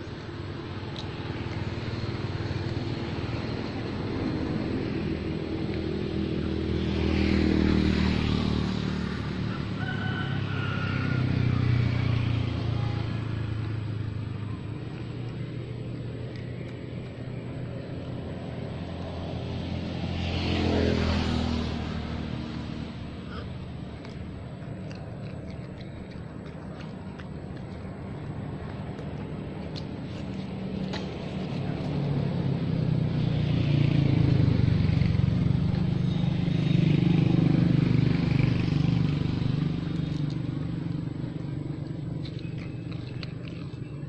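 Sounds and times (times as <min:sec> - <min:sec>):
vehicles passing on road: 0:00.0 - 0:44.0.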